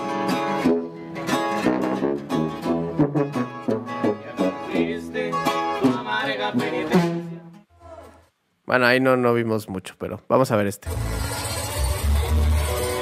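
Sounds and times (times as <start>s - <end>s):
guitar picking quick runs: 0.0s - 7.6s, 10.8s - 13.0s
acoustic guitar: 0.0s - 8.1s, 10.8s - 13.0s
tuba playing: 0.6s - 7.6s.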